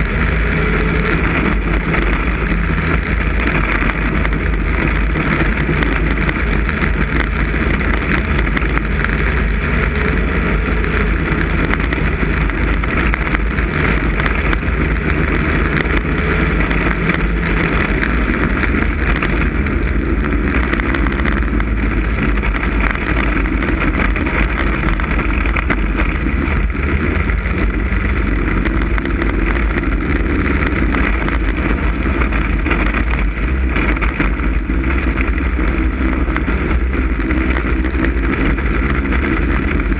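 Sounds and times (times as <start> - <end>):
snowmobile engine running: 0.0 - 39.9
wind buffeting microphone: 0.0 - 39.9.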